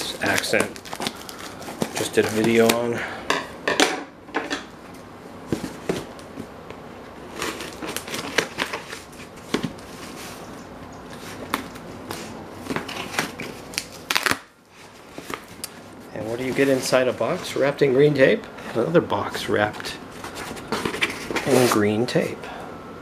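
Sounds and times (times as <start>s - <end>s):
cardboard box rustling: 7.3s - 10.4s, 16.2s - 17.5s, 20.1s - 22.0s.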